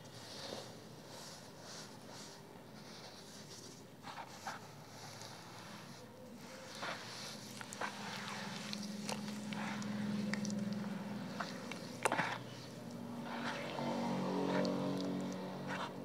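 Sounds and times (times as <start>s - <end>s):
low steady hum: 0.0s - 16.0s
wet cement squelching: 6.6s - 16.0s.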